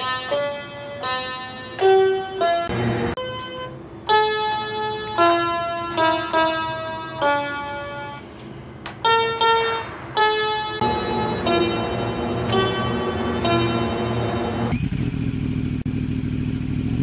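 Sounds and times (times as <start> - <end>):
slow melody of held notes: 0.0 - 8.2, 10.2 - 14.7.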